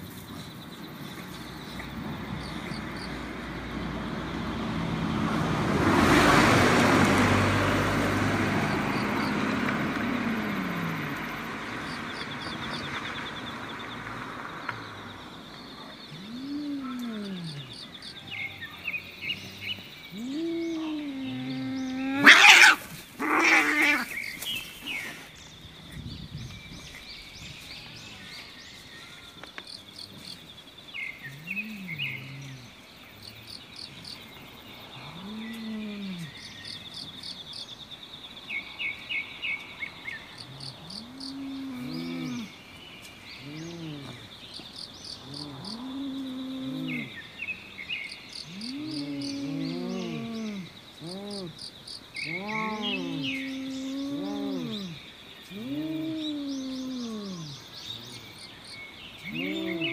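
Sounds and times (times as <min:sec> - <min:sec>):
insects trilling and chirping: 0:00.0 - 0:59.9
cats yowling low: 0:16.2 - 0:17.7, 0:20.1 - 0:24.1, 0:45.2 - 0:47.1, 0:48.5 - 0:51.6, 0:52.2 - 0:57.6, 0:59.3 - 0:59.9
cats screeching and scuffling: 0:20.1 - 0:25.3, 0:52.2 - 0:53.5.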